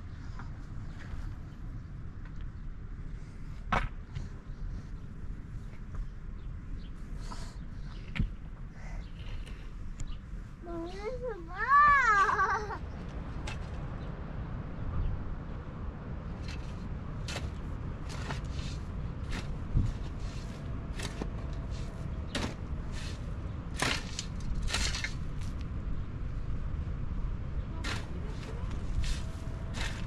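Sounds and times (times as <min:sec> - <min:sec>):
low background rumble: 0:00.0 - 0:30.0
shovel scraping stony soil: 0:16.4 - 0:25.6, 0:27.8 - 0:30.0.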